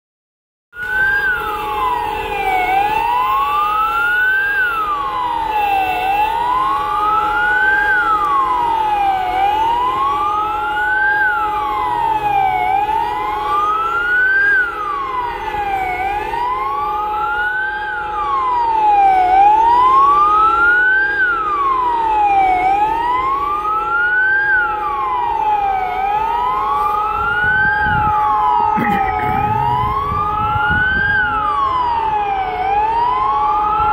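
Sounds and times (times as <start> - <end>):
steady held siren tones: 0.8 - 33.9
warning siren wailing: 0.8 - 33.9.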